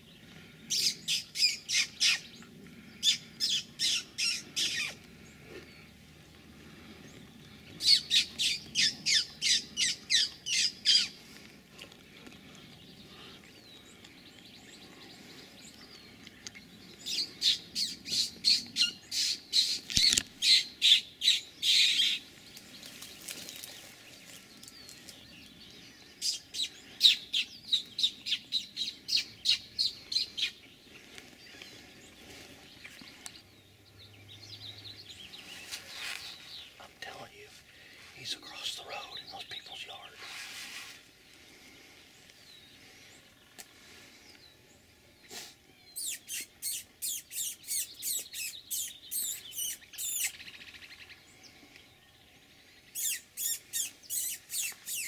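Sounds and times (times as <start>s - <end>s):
bird calling harsh notes: 3.0s - 5.0s, 46.0s - 50.4s, 53.0s - 55.0s.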